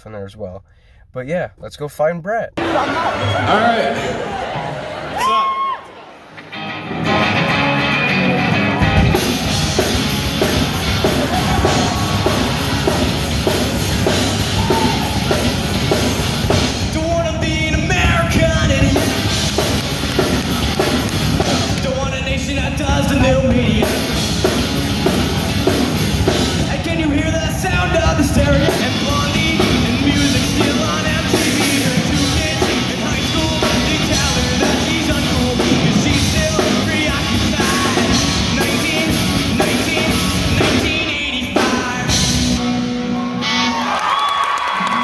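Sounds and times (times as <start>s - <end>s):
electric guitars: 6.1s - 45.0s
bass guitar: 6.4s - 44.2s
drum kit: 6.5s - 43.8s
lead singer singing: 26.6s - 42.6s.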